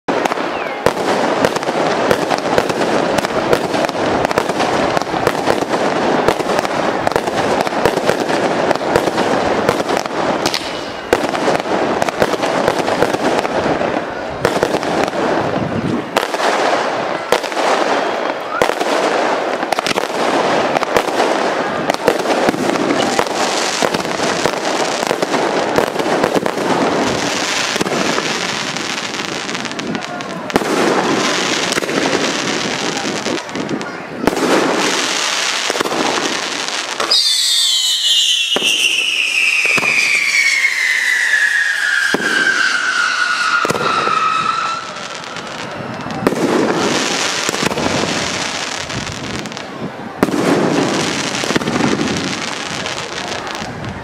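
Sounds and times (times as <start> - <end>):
fireworks crackling and popping: 0.0 - 54.0
falling firework whistle: 0.1 - 5.7, 9.7 - 14.8, 36.6 - 47.6.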